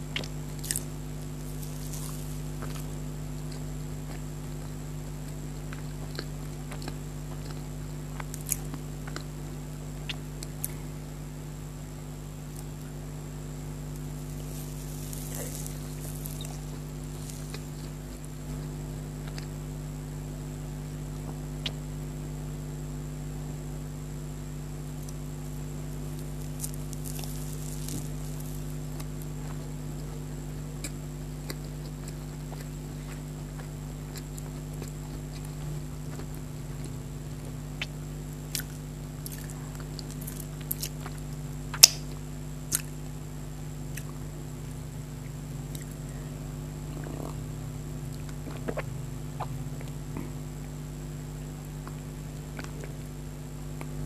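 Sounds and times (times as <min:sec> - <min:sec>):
low electrical hum: 0:00.0 - 0:54.0
chewing and wet mouth sounds: 0:00.1 - 0:09.3, 0:10.0 - 0:10.8, 0:14.3 - 0:19.6, 0:30.8 - 0:37.0, 0:37.8 - 0:43.0, 0:48.1 - 0:50.8, 0:51.7 - 0:53.1.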